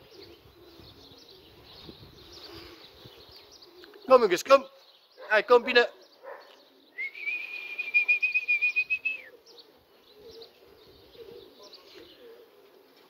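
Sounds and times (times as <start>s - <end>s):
trilling whistle: 7.0s - 9.2s.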